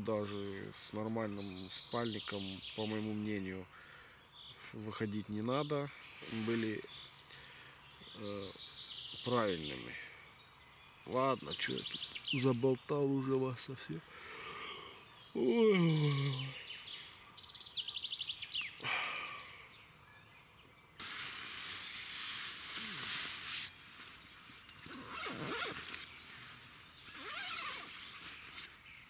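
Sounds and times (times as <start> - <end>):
man yawning groan: 14.2 - 16.7, 18.8 - 19.6
sleeping bag and clothing rustling: 21.0 - 29.0.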